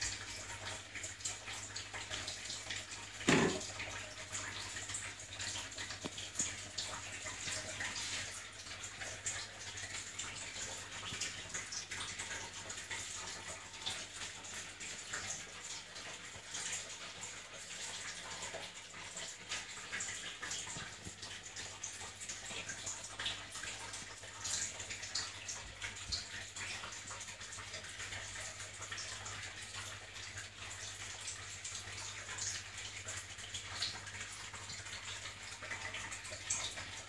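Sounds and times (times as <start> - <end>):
running water hiss: 3.2 - 12.7
thump: 3.3 - 3.6.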